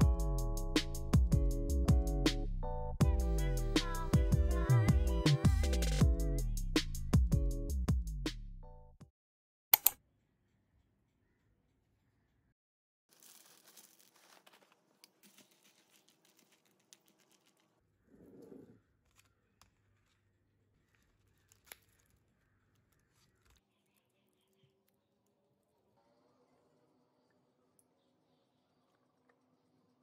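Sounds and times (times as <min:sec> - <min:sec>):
crackly rustle of packaging: 0:13.1 - 0:17.9, 0:18.8 - 0:25.0
light clicks and crinkles: 0:13.1 - 0:17.9, 0:18.9 - 0:25.6.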